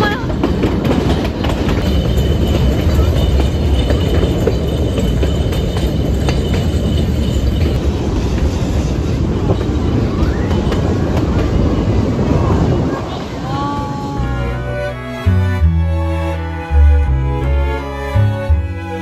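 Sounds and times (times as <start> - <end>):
wheels clicking on rails: 0.0 - 14.2
train carriage rumbling: 0.0 - 19.0.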